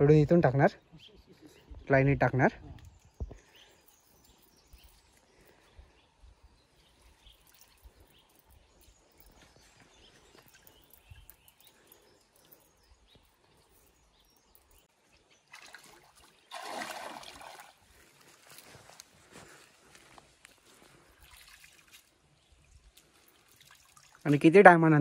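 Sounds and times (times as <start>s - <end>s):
faint river water trickling: 0.8s - 25.0s
water splashing: 15.4s - 17.8s, 21.1s - 22.4s.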